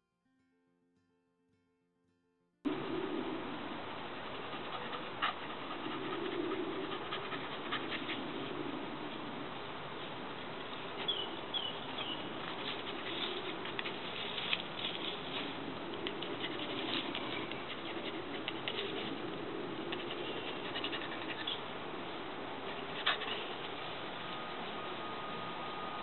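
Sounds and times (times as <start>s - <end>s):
steady hiss: 2.7s - 26.0s
rustling in long grass: 5.4s - 19.3s.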